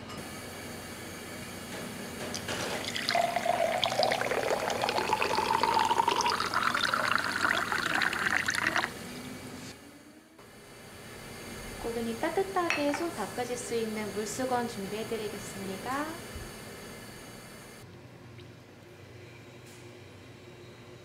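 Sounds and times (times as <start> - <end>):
water pouring into a container: 2.8 - 8.9.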